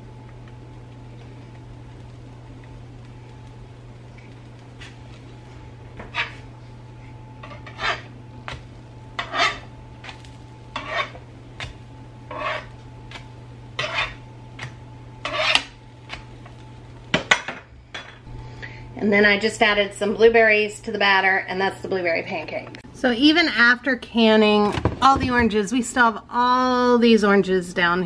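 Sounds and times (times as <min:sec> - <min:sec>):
steady low hum: 0:00.0 - 0:28.0
metal spatula scraping griddle: 0:06.0 - 0:06.4, 0:07.4 - 0:08.1, 0:09.2 - 0:11.2, 0:12.3 - 0:12.8, 0:13.8 - 0:14.2, 0:15.2 - 0:15.7.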